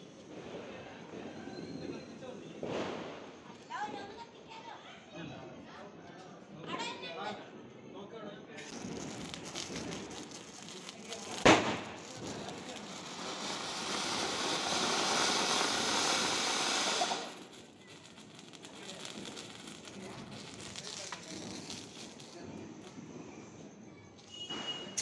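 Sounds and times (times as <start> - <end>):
firecracker bang: 2.6 - 3.4, 8.6 - 23.0
fountain firework hissing: 8.6 - 23.0.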